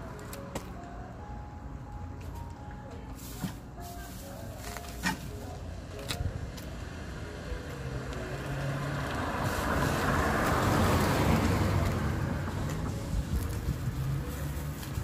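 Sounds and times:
car driving past: 6.8s - 14.9s.

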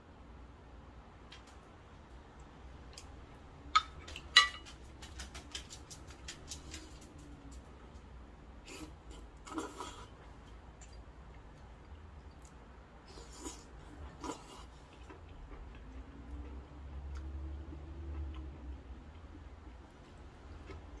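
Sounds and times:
tableware clinking: 3.8s - 4.7s
slurping noodles: 8.7s - 10.2s, 13.0s - 14.9s.

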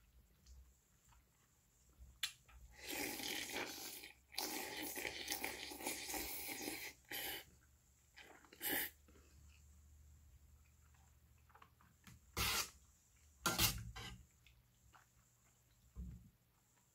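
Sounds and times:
man slurping noodles: 2.8s - 7.5s, 8.3s - 9.0s.

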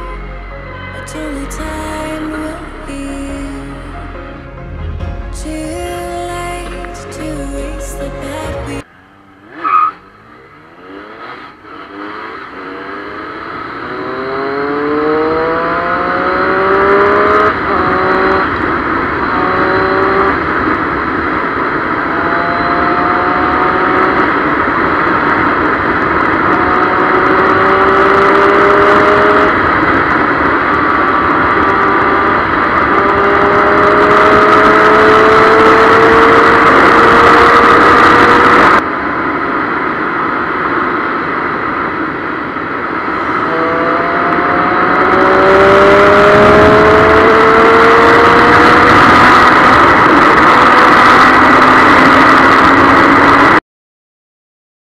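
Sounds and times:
motorcycle engine accelerating: 4.7s - 53.6s
wind rushing over microphone: 13.3s - 53.6s.

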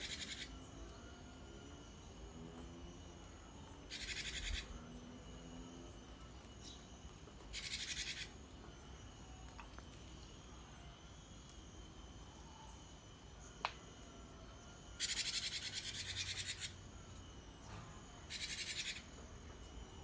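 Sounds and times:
bird churring calls: 0.0s - 0.5s, 3.9s - 4.7s, 7.5s - 8.3s, 15.0s - 16.8s, 18.3s - 19.1s.

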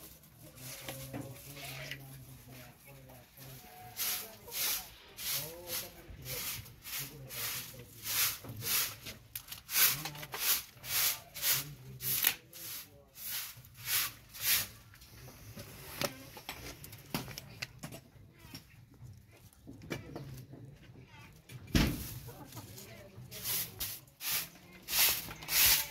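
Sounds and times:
rhythmic scraping strokes: 3.4s - 14.8s.

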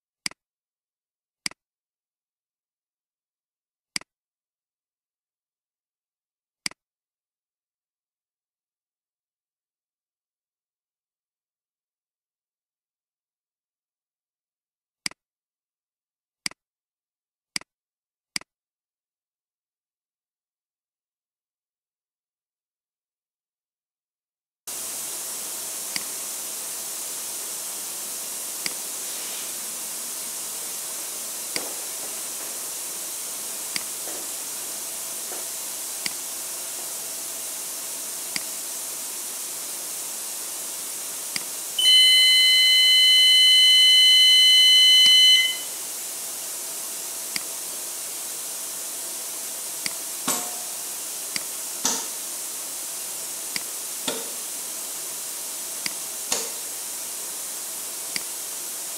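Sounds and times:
steady air hiss: 24.7s - 41.8s, 45.5s - 58.9s
air valve clicks: 25.9s - 26.2s, 31.0s - 36.9s, 38.3s - 38.6s, 41.3s - 41.5s, 47.3s - 47.5s, 49.8s - 52.3s, 53.5s - 54.6s, 55.8s - 56.7s, 58.1s - 58.4s
high electronic beep: 41.8s - 45.7s.

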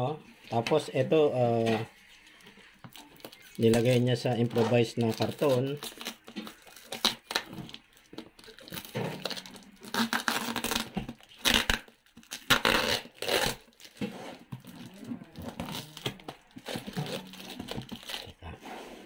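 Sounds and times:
plastic wrap crinkling and tearing: 1.9s - 18.4s
scissors cutting packing tape: 5.0s - 14.0s, 14.7s - 18.3s.

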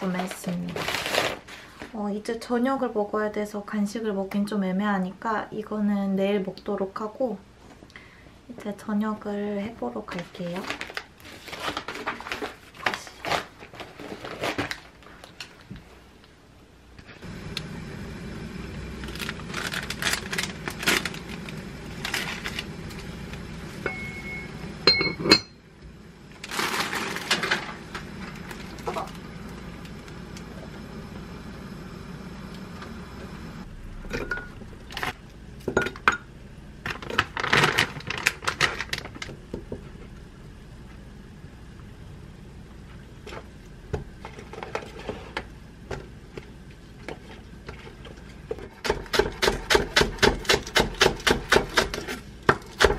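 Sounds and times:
plastic packaging crinkling: 0.0s - 1.7s, 10.1s - 15.7s, 19.0s - 23.1s, 26.3s - 30.2s, 36.8s - 39.4s
low hum: 17.0s - 37.2s.

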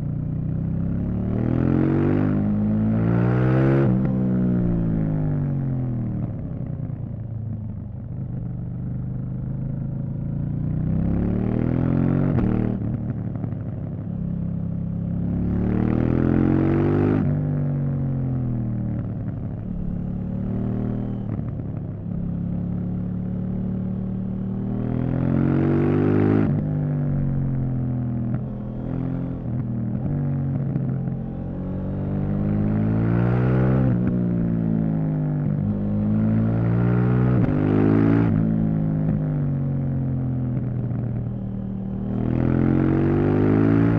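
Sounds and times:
motorcycle engine revving: 14.9s - 43.9s.

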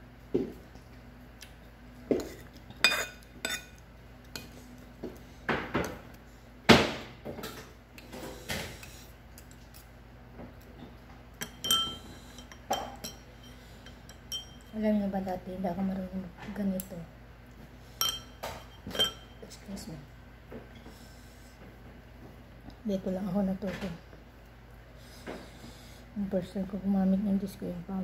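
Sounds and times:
utensils clinking on ceramic bowl: 2.7s - 3.8s, 11.4s - 14.8s, 18.0s - 19.5s.

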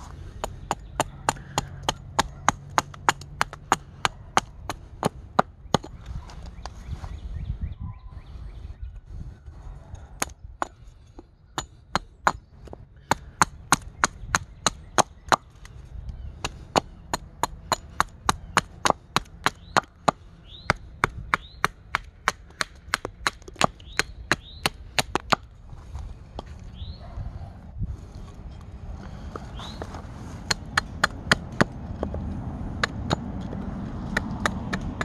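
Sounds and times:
axe chopping wood: 0.3s - 6.0s, 11.6s - 15.8s, 16.4s - 25.5s, 30.4s - 32.2s, 32.8s - 35.0s.

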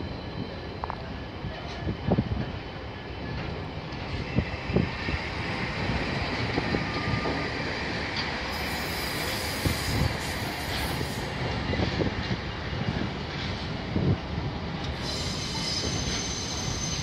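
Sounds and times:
train wheels rolling on rail: 0.0s - 17.0s
high wheel squeal: 15.0s - 17.0s.

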